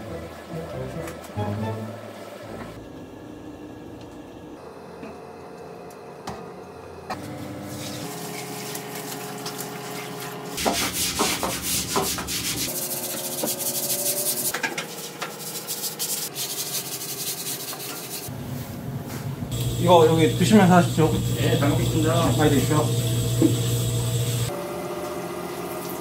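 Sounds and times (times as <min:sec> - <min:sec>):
brush scrubbing wet tiled floor: 0:07.7 - 0:18.3.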